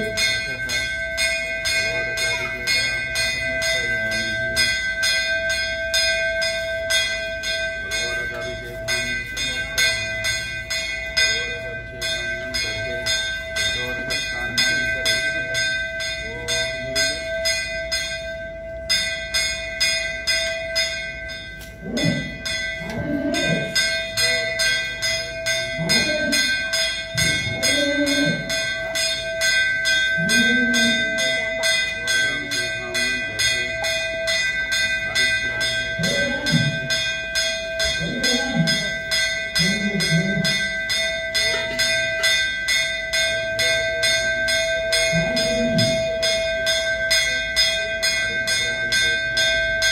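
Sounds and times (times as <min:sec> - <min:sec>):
man's voice: 0:00.0 - 0:00.9, 0:01.7 - 0:04.7, 0:07.8 - 0:10.2, 0:11.2 - 0:17.4
bell ringing in fast strokes: 0:00.0 - 0:49.9.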